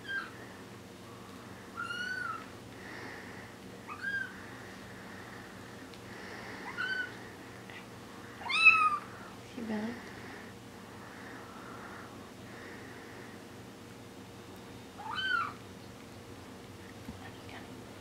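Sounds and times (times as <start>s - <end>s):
kittens mewing: 1.7s - 2.5s, 3.8s - 4.6s, 6.3s - 9.3s, 15.0s - 15.6s.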